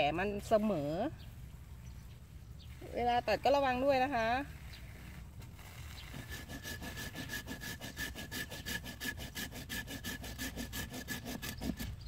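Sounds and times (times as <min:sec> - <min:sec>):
hand saw cutting wood: 0:04.8 - 0:12.0.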